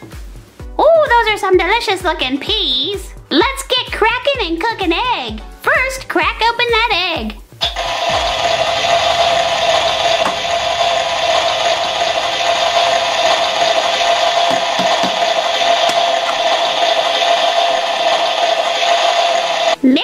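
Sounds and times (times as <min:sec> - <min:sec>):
low hum: 0:07.6 - 0:19.8
toy cooker electronic hiss: 0:07.6 - 0:19.8.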